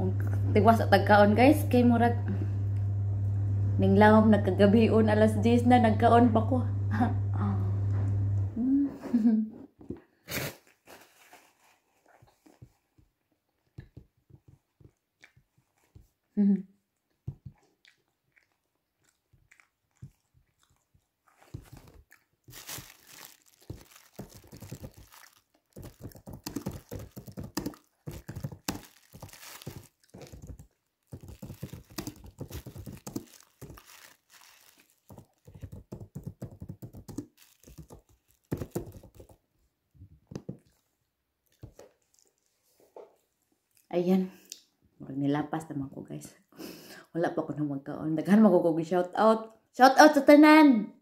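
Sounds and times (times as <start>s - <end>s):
tissue paper crumpling: 10.7s - 12.7s, 21.4s - 36.1s, 36.8s - 39.4s.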